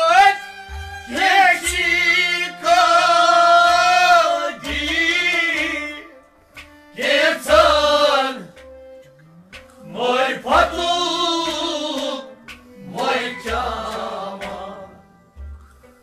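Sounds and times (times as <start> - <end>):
man singing: 1.1 - 6.2, 9.8 - 15.0.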